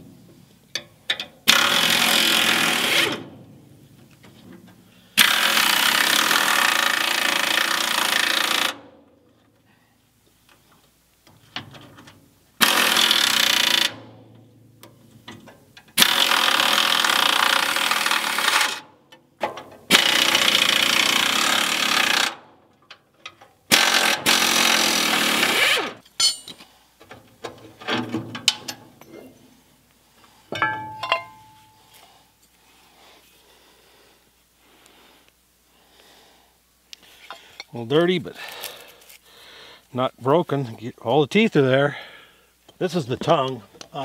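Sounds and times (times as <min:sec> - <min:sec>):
power wrench running: 0:01.5 - 0:03.3, 0:05.2 - 0:08.8, 0:12.6 - 0:14.1, 0:16.0 - 0:18.9, 0:19.9 - 0:22.4, 0:23.7 - 0:26.4
metal clinks: 0:26.1 - 0:26.6, 0:30.6 - 0:32.0.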